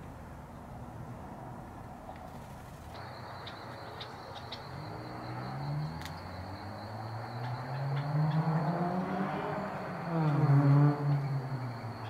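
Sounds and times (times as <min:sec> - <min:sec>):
vehicle engine hum: 0:00.0 - 0:12.0
high insect drone: 0:02.4 - 0:12.0
bird chirps: 0:02.9 - 0:09.0.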